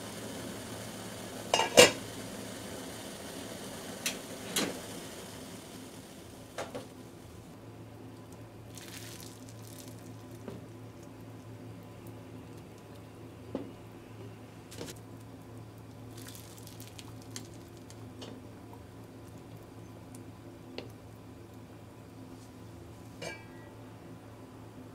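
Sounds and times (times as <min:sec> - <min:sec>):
steady low hum: 0:00.0 - 0:24.9
water splashing and sloshing: 0:08.7 - 0:10.0.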